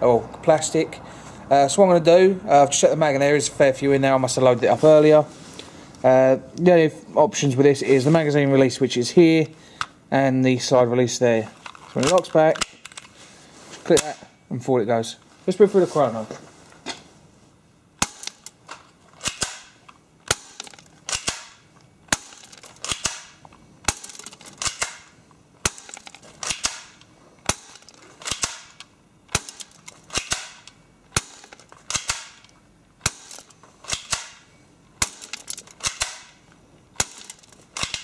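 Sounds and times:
bb pistol shots snapping: 18.0s - 18.6s, 19.2s - 36.4s, 37.0s - 38.0s.

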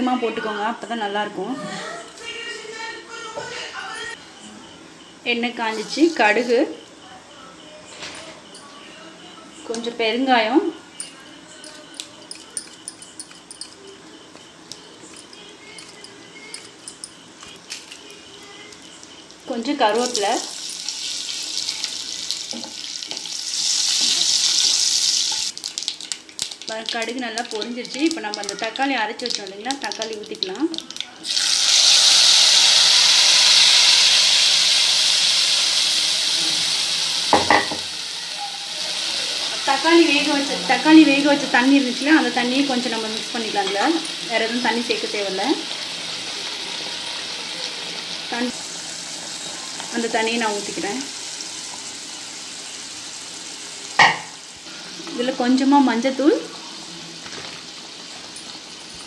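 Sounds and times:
oil sizzling: 5.6s - 6.8s, 9.7s - 59.0s
mustard seeds popping in oil: 19.9s - 32.3s.

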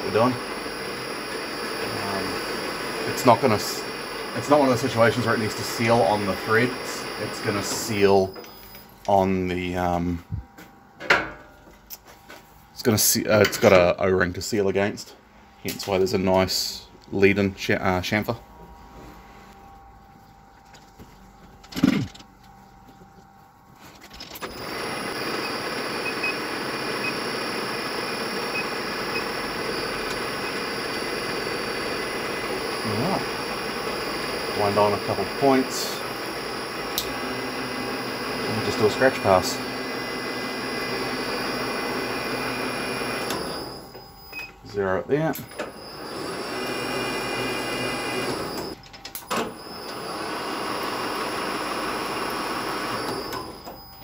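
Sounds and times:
metal lathe running: 0.0s - 8.9s, 24.4s - 44.0s, 45.5s - 48.8s, 49.4s - 54.0s
high whine of lathe: 0.0s - 10.8s, 24.4s - 54.0s.

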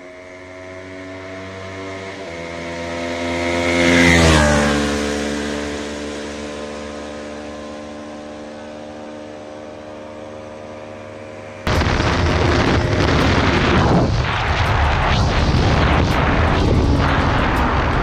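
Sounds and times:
motorcycle engine droning: 0.0s - 18.0s
wind noise rushing: 11.7s - 18.0s.

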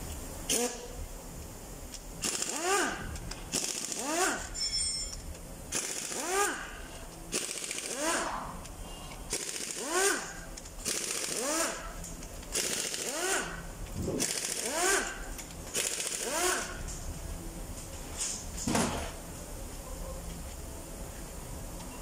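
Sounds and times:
power wrench bursts: 0.5s - 0.9s, 2.2s - 4.6s, 5.7s - 8.4s, 9.3s - 16.8s.

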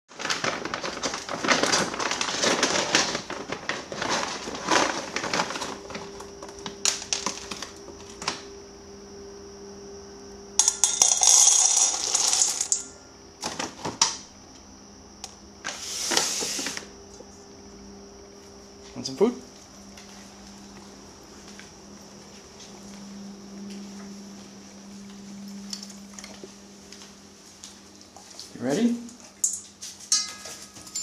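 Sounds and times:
small hard objects clattering: 0.1s - 8.4s, 10.6s - 14.1s
faint steady hum: 0.2s - 31.0s
high whine: 4.8s - 13.6s, 14.3s - 29.2s.

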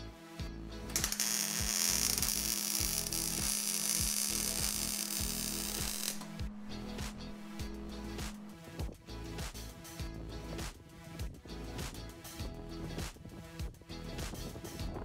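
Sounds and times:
background music with steady beat: 0.0s - 15.0s
welder arc hissing and crackling: 1.0s - 6.4s.

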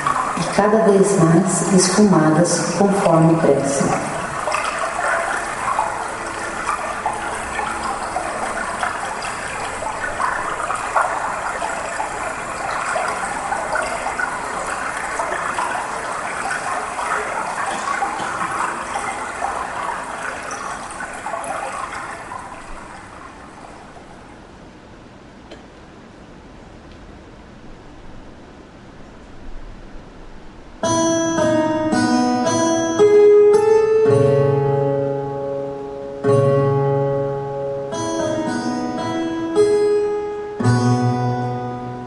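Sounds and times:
rushing trickling water: 0.0s - 25.0s.

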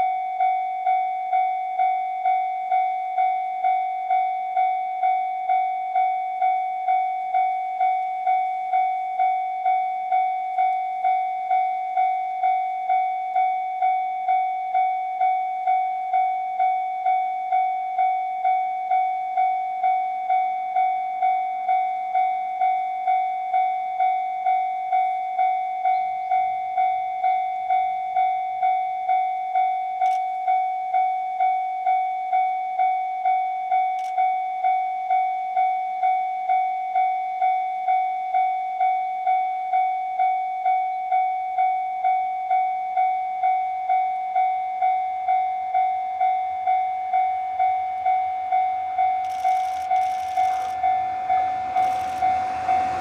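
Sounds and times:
level crossing alarm ringing: 0.0s - 53.0s
electric locomotive rumble: 46.9s - 53.0s.

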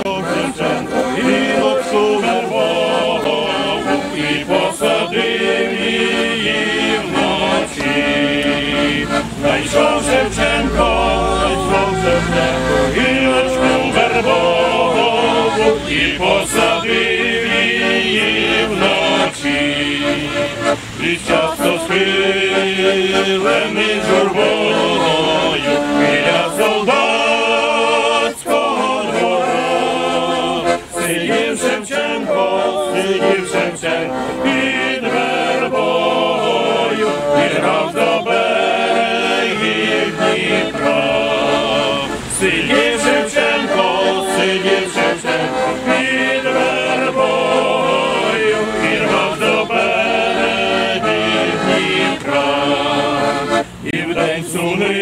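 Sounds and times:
accordion: 0.0s - 55.0s
group of people singing: 0.0s - 55.0s.

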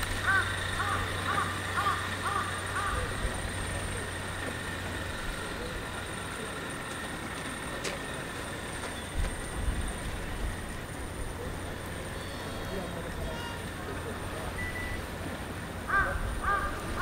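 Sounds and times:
low background hum: 0.0s - 17.0s
crow cawing: 0.2s - 3.2s, 15.9s - 17.0s.

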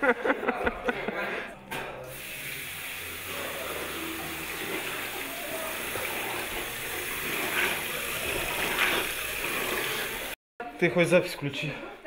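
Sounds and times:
tap water running into basin: 1.9s - 10.4s.

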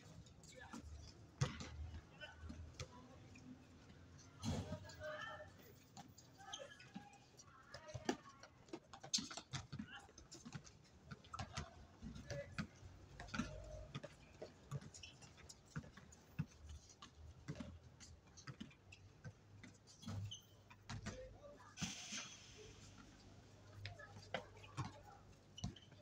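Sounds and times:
basketball bouncing: 1.4s - 2.0s, 17.5s - 17.7s
shoe squeaks or calls: 6.0s - 7.3s, 19.9s - 20.8s, 24.0s - 26.0s.

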